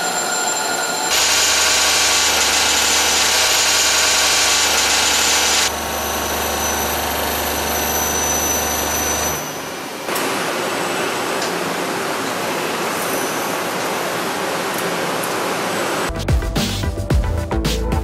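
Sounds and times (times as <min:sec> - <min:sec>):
thin high whine: 0:00.0 - 0:11.1
hissing machine noise: 0:00.0 - 0:16.1
steady machining noise: 0:00.0 - 0:16.1.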